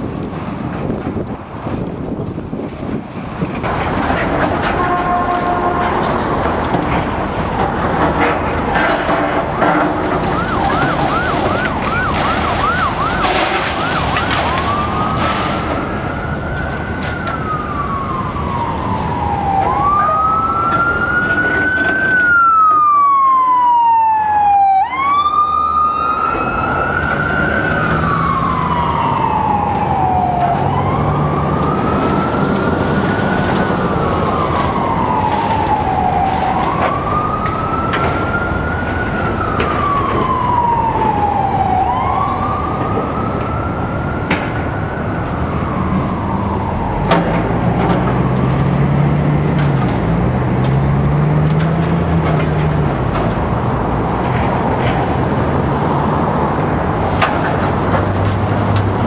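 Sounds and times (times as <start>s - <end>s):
heavy demolition machinery running: 0.1s - 17.6s, 45.9s - 59.0s
siren wailing: 7.2s - 58.0s.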